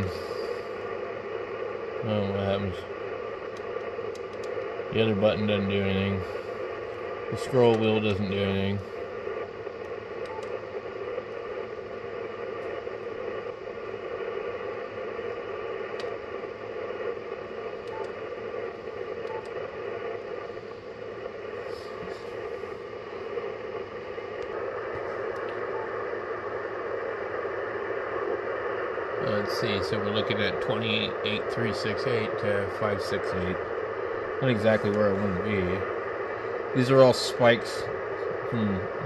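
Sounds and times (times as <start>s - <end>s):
faint whining tones: 0.0s - 39.0s
radio static: 0.0s - 39.0s
faint clicks: 3.5s - 4.7s.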